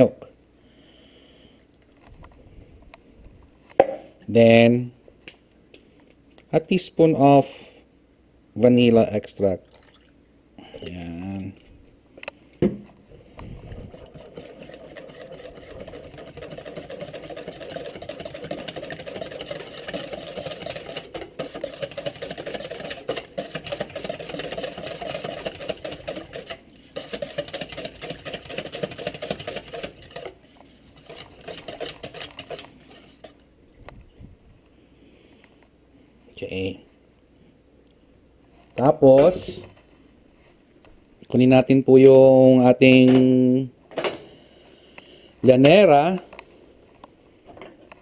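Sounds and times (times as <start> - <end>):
wire whisk beating in a metal bowl: 13.9 - 30.4, 31.0 - 33.3.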